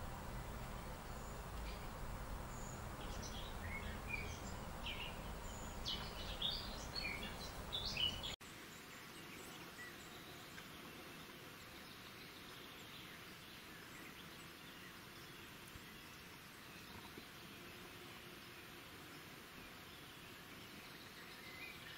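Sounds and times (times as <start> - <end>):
bird chirps: 0.0 - 8.4
low outdoor rumble: 0.0 - 8.4
faint outdoor hiss: 0.0 - 21.9.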